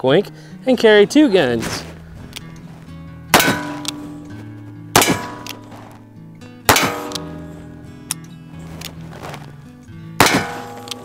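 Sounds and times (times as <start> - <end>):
background music: 0.0 - 11.0
revolver shots ringing: 3.3 - 5.9, 6.7 - 8.2, 10.2 - 11.0.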